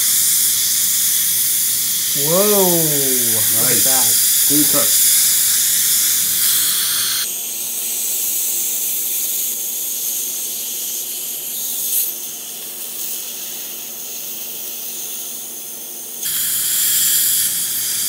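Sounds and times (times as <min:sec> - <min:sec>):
dental equipment hissing: 0:00.0 - 0:07.3, 0:16.2 - 0:18.0.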